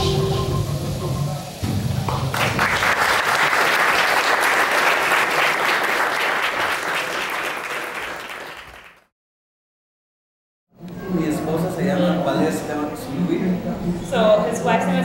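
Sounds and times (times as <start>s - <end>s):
audience clapping: 2.0s - 9.1s.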